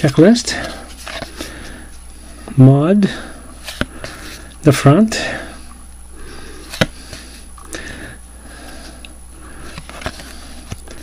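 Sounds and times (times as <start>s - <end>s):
cards rustling: 0.4s - 2.0s, 3.6s - 4.5s, 6.3s - 7.8s, 8.6s - 11.0s.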